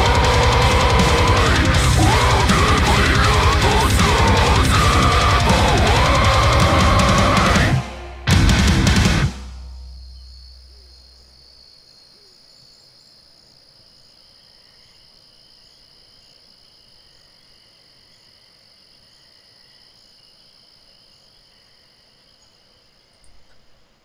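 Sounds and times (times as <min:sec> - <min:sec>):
soft insect chirp: 0:09.6 - 0:24.0
insects trilling: 0:09.7 - 0:24.0.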